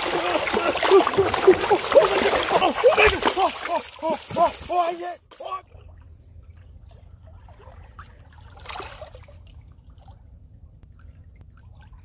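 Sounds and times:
water slosh: 0.0s - 3.8s
river water trickling and lapping: 0.0s - 4.2s, 5.6s - 12.0s
low steady rumble: 0.0s - 12.0s.

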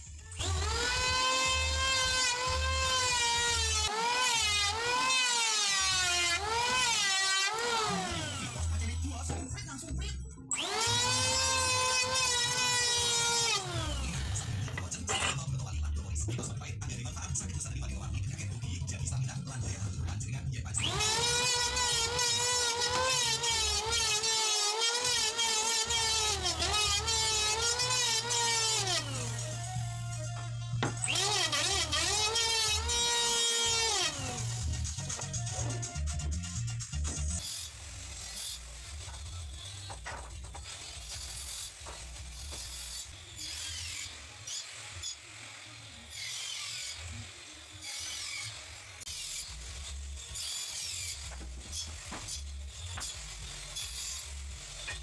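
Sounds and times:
electric hand planer whining: 0.4s - 9.1s, 10.6s - 14.8s, 20.8s - 35.8s.

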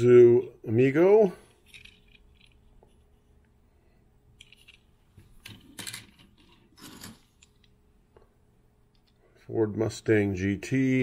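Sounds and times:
metal toy cars clattering on table: 5.4s - 7.5s.

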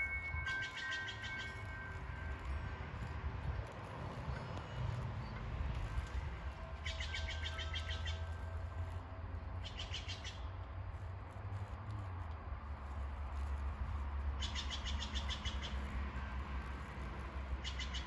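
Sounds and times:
bird trilling high chirps: 0.0s - 2.0s, 6.8s - 8.4s, 9.6s - 10.5s, 14.4s - 15.9s, 17.6s - 18.0s
steady low rumble: 0.0s - 14.4s.

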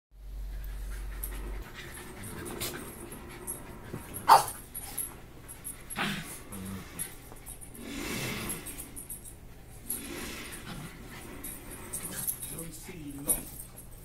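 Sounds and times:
dogs panting: 0.4s - 14.0s
dogs scuffling: 9.1s - 14.0s.

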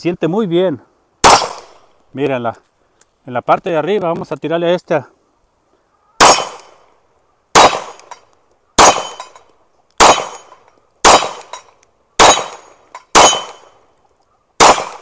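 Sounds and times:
pistol shots: 1.2s - 1.9s, 6.2s - 6.8s, 7.5s - 8.2s, 8.8s - 9.4s, 10.0s - 13.8s, 14.6s - 15.0s
metallic ping of steel targets: 7.6s - 13.7s.

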